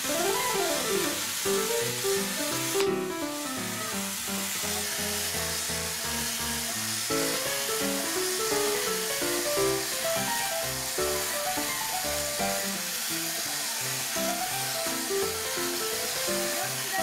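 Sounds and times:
background music melody: 0.0 - 17.0
steady hiss: 0.0 - 17.0.

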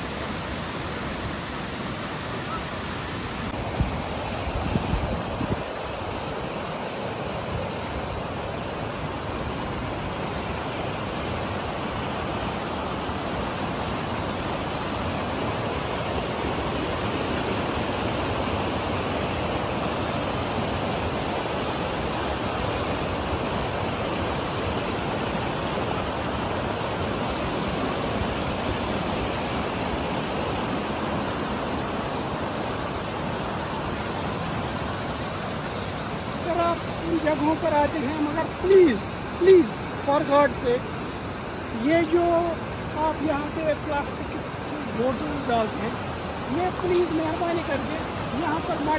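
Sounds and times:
river water rushing: 0.0 - 48.9.

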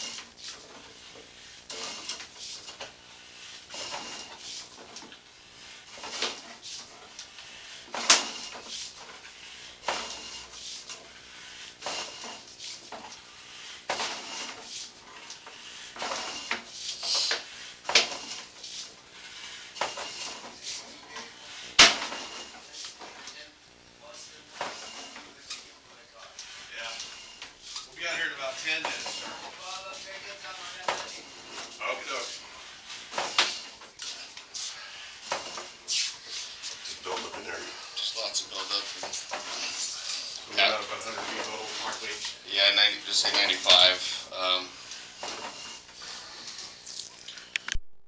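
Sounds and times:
metallic clicks and clanks of cable: 5.9 - 10.3.

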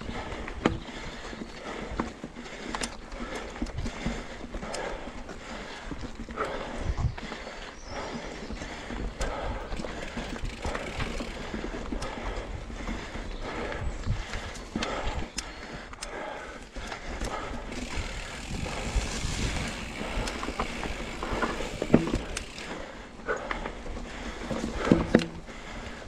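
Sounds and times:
bike rattling over rough trail: 0.0 - 26.0
wind rumble on microphone: 6.7 - 7.2, 17.9 - 22.2.

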